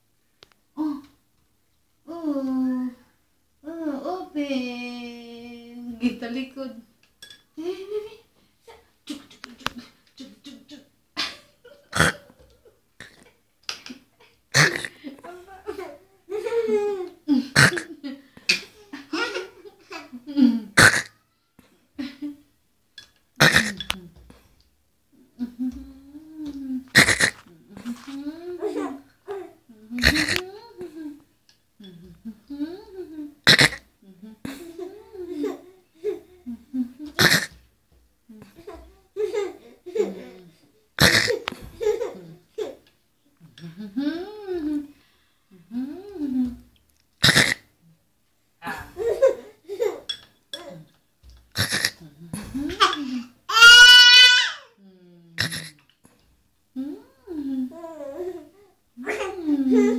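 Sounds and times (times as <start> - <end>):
child laughing and vocalising: 25.6 - 30.8.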